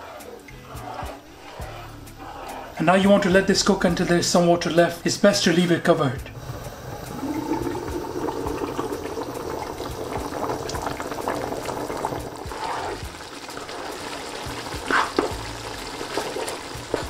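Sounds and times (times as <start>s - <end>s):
rice boiling in a pot: 6.3s - 17.0s.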